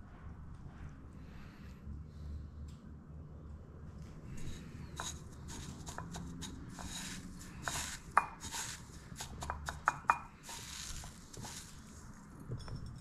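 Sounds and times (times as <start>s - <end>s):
breadcrumbs rustling and crunching: 4.4s - 12.4s.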